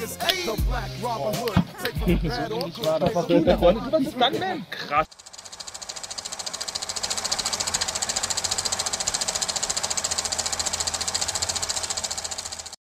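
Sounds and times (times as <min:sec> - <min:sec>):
rapid mechanical clatter: 0:05.1 - 0:12.8.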